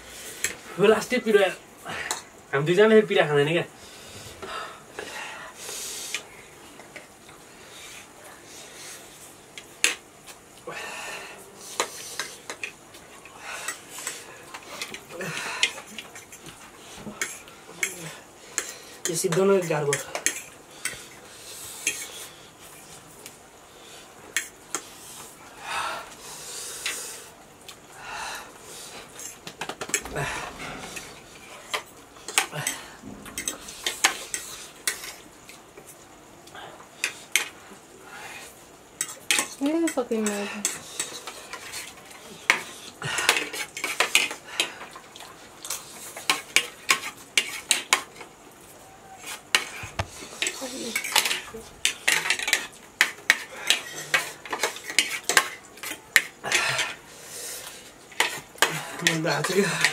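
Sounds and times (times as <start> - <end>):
cutlery clinking on plates: 29.2 - 35.2, 39.0 - 41.9, 49.3 - 57.0.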